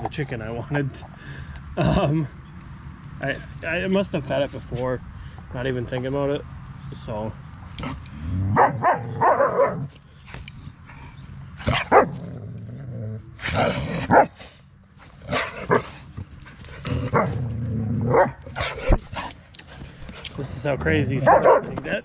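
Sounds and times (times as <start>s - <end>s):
dogs barking and growling: 7.7s - 22.0s.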